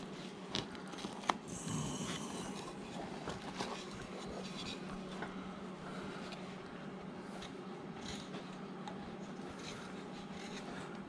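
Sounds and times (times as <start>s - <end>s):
low steady hum: 0.0s - 11.0s
knife carving wood: 9.2s - 11.0s.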